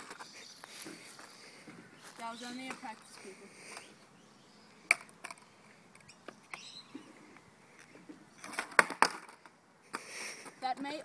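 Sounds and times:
skateboard clacks on asphalt: 0:08.4 - 0:10.0.

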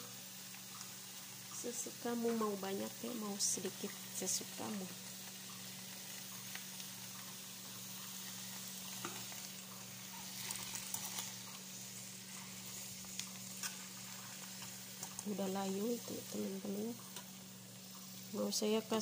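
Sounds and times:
greens sizzling in a pan: 0:00.0 - 0:19.0
metal turner scraping a pan: 0:10.0 - 0:11.6, 0:12.3 - 0:15.2.

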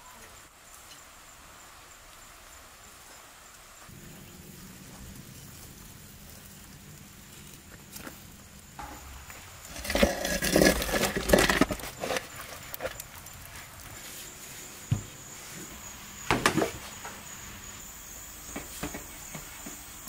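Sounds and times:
metal tray scraping and clattering: 0:09.7 - 0:13.0.

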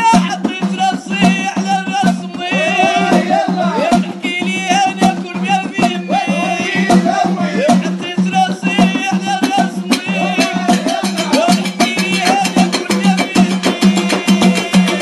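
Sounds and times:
backing music: 0:00.0 - 0:15.0
man singing: 0:00.0 - 0:15.0.

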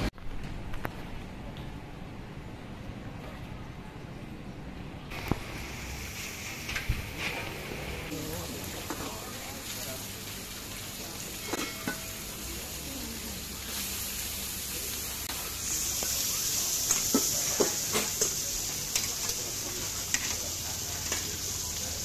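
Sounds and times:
meat sizzling on griddle: 0:05.1 - 0:22.0.

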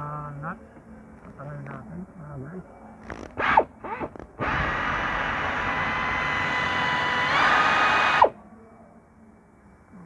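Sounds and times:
power tool motor spinning: 0:03.3 - 0:08.3.

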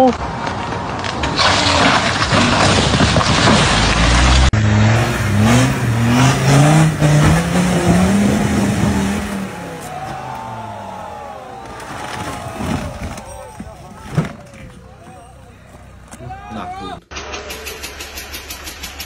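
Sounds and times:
car engine and wheel noise: 0:00.0 - 0:19.0
engine revving hard: 0:03.8 - 0:12.2.

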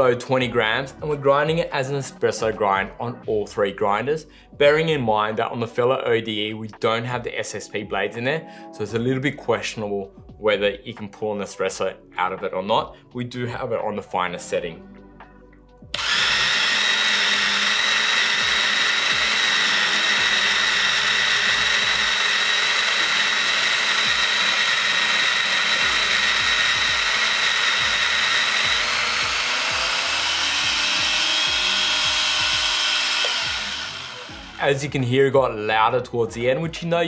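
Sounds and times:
electric coffee grinder whining: 0:15.9 - 0:34.8.

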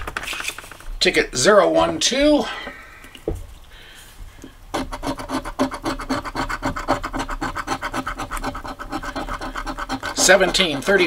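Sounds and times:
lottery ticket being scratched: 0:04.8 - 0:11.0.

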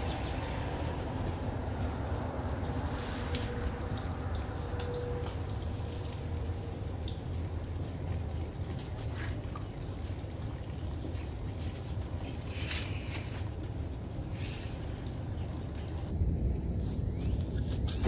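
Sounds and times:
water trickling and dripping: 0:00.0 - 0:18.0
steady low rumble: 0:09.9 - 0:18.0.

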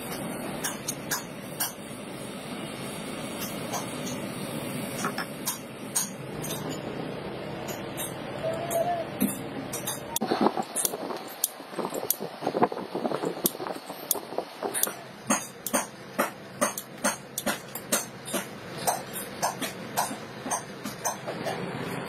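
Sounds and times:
pliers clicking on metal plates: 0:07.7 - 0:12.2, 0:13.4 - 0:21.6.

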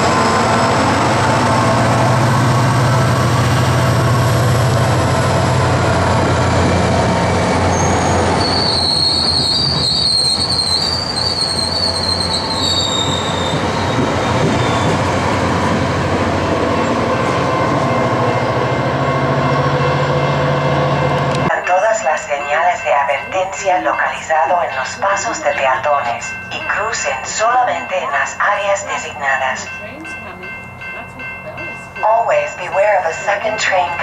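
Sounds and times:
diesel locomotive engine hum: 0:00.0 - 0:34.0
train coaches rolling over rails: 0:00.0 - 0:34.0
high-pitched wheel squeal: 0:07.2 - 0:15.2.

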